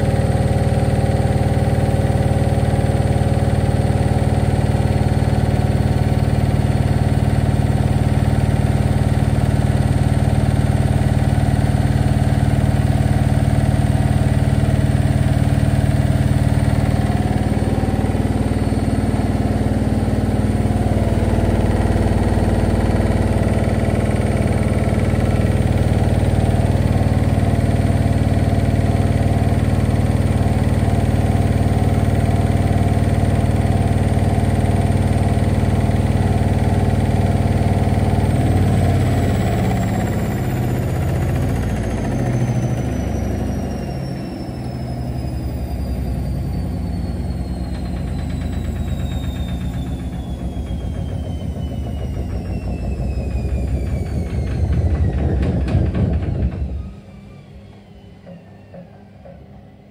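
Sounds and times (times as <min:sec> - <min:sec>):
washing machine spinning: 0:00.0 - 0:59.9
drum uneven rumbling: 0:51.6 - 0:57.0.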